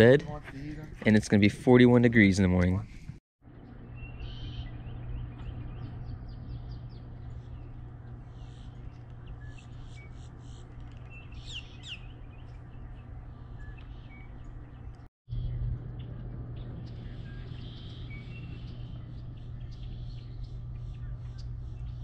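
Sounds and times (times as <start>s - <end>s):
steady low hum: 0.0s - 22.0s
birds chirping and calling: 3.5s - 22.0s.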